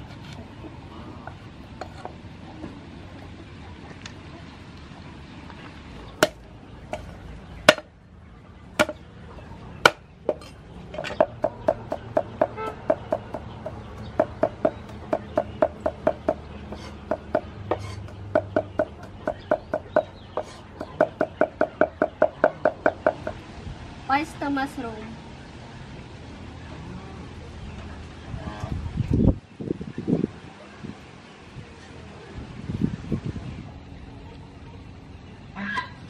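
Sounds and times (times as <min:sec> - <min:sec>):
cleaver chopping on wooden board: 0:06.2 - 0:07.1, 0:07.7 - 0:07.9, 0:08.8 - 0:09.0, 0:09.8 - 0:23.4.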